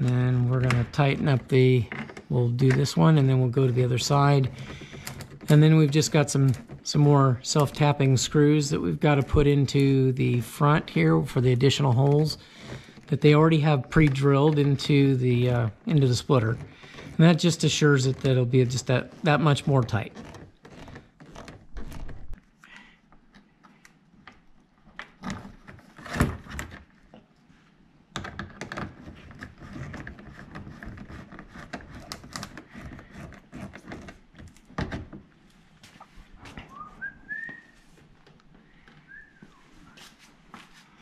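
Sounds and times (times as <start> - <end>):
short whistle-like squeaks: 36.7 - 37.8, 39.0 - 40.0.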